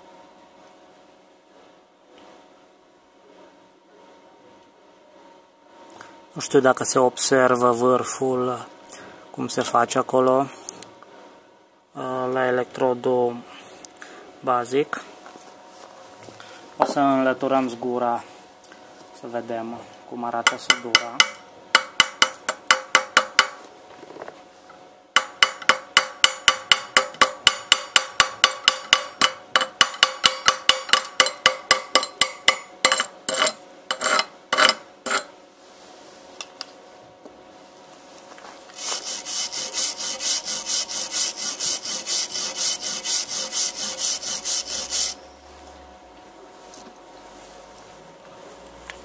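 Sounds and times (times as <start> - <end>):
hammer tapping on metal: 20.5 - 23.6, 25.2 - 33.1
wire brush scrubbing metal: 38.7 - 45.2.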